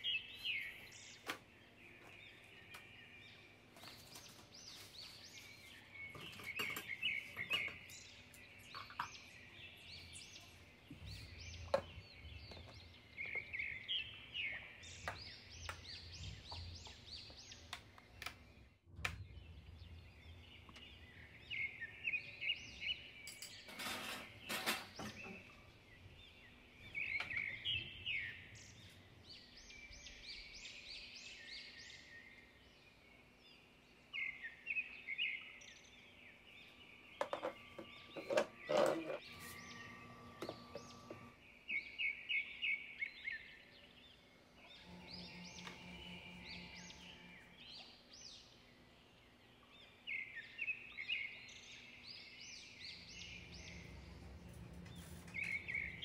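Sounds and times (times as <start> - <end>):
small birds chirping: 0.0 - 56.0
objects rustling: 37.2 - 41.3.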